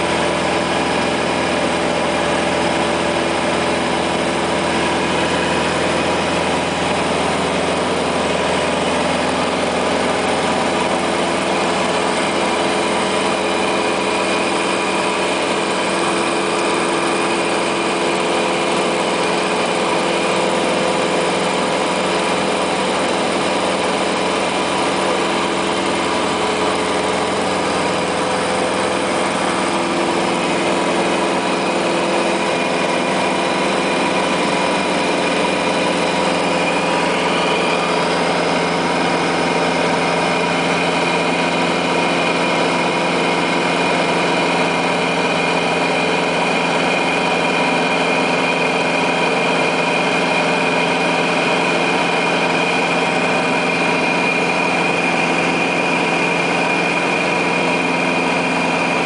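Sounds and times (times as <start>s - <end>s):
light aircraft engine and propeller: 0.0s - 59.0s.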